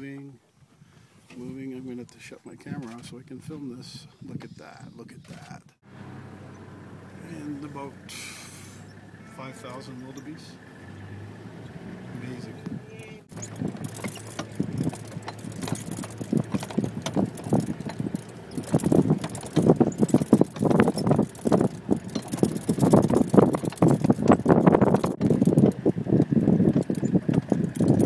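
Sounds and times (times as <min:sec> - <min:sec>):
herd of animals moving: 0:06.3 - 0:28.0.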